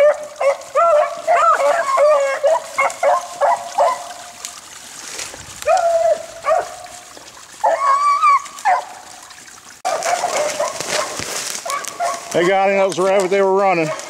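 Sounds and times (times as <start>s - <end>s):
beagles baying: 0.0s - 4.3s.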